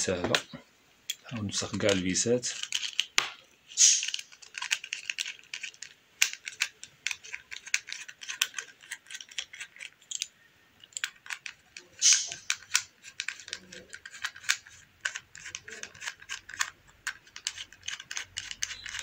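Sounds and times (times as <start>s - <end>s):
screwdriver clicks and scratches: 2.6s - 3.2s, 3.8s - 19.0s
screwdriver scrape: 11.0s - 19.0s.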